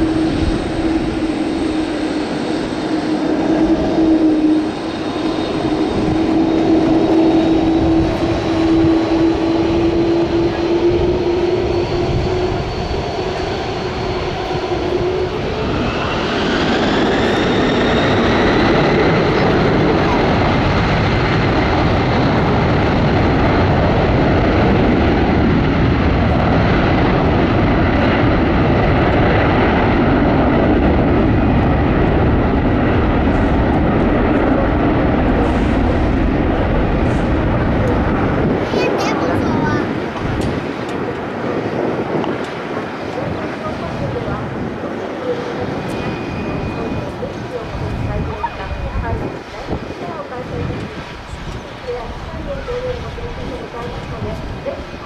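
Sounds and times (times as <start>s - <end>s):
jet engines whining: 0.0s - 55.0s.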